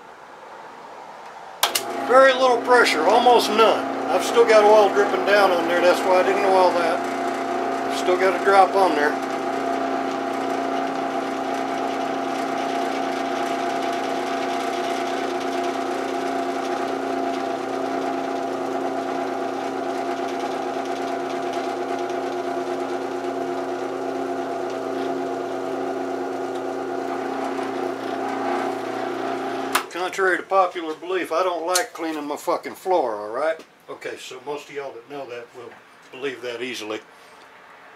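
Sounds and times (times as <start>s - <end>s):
drill bit drilling metal: 1.6s - 29.9s
drill press motor humming: 1.6s - 29.9s.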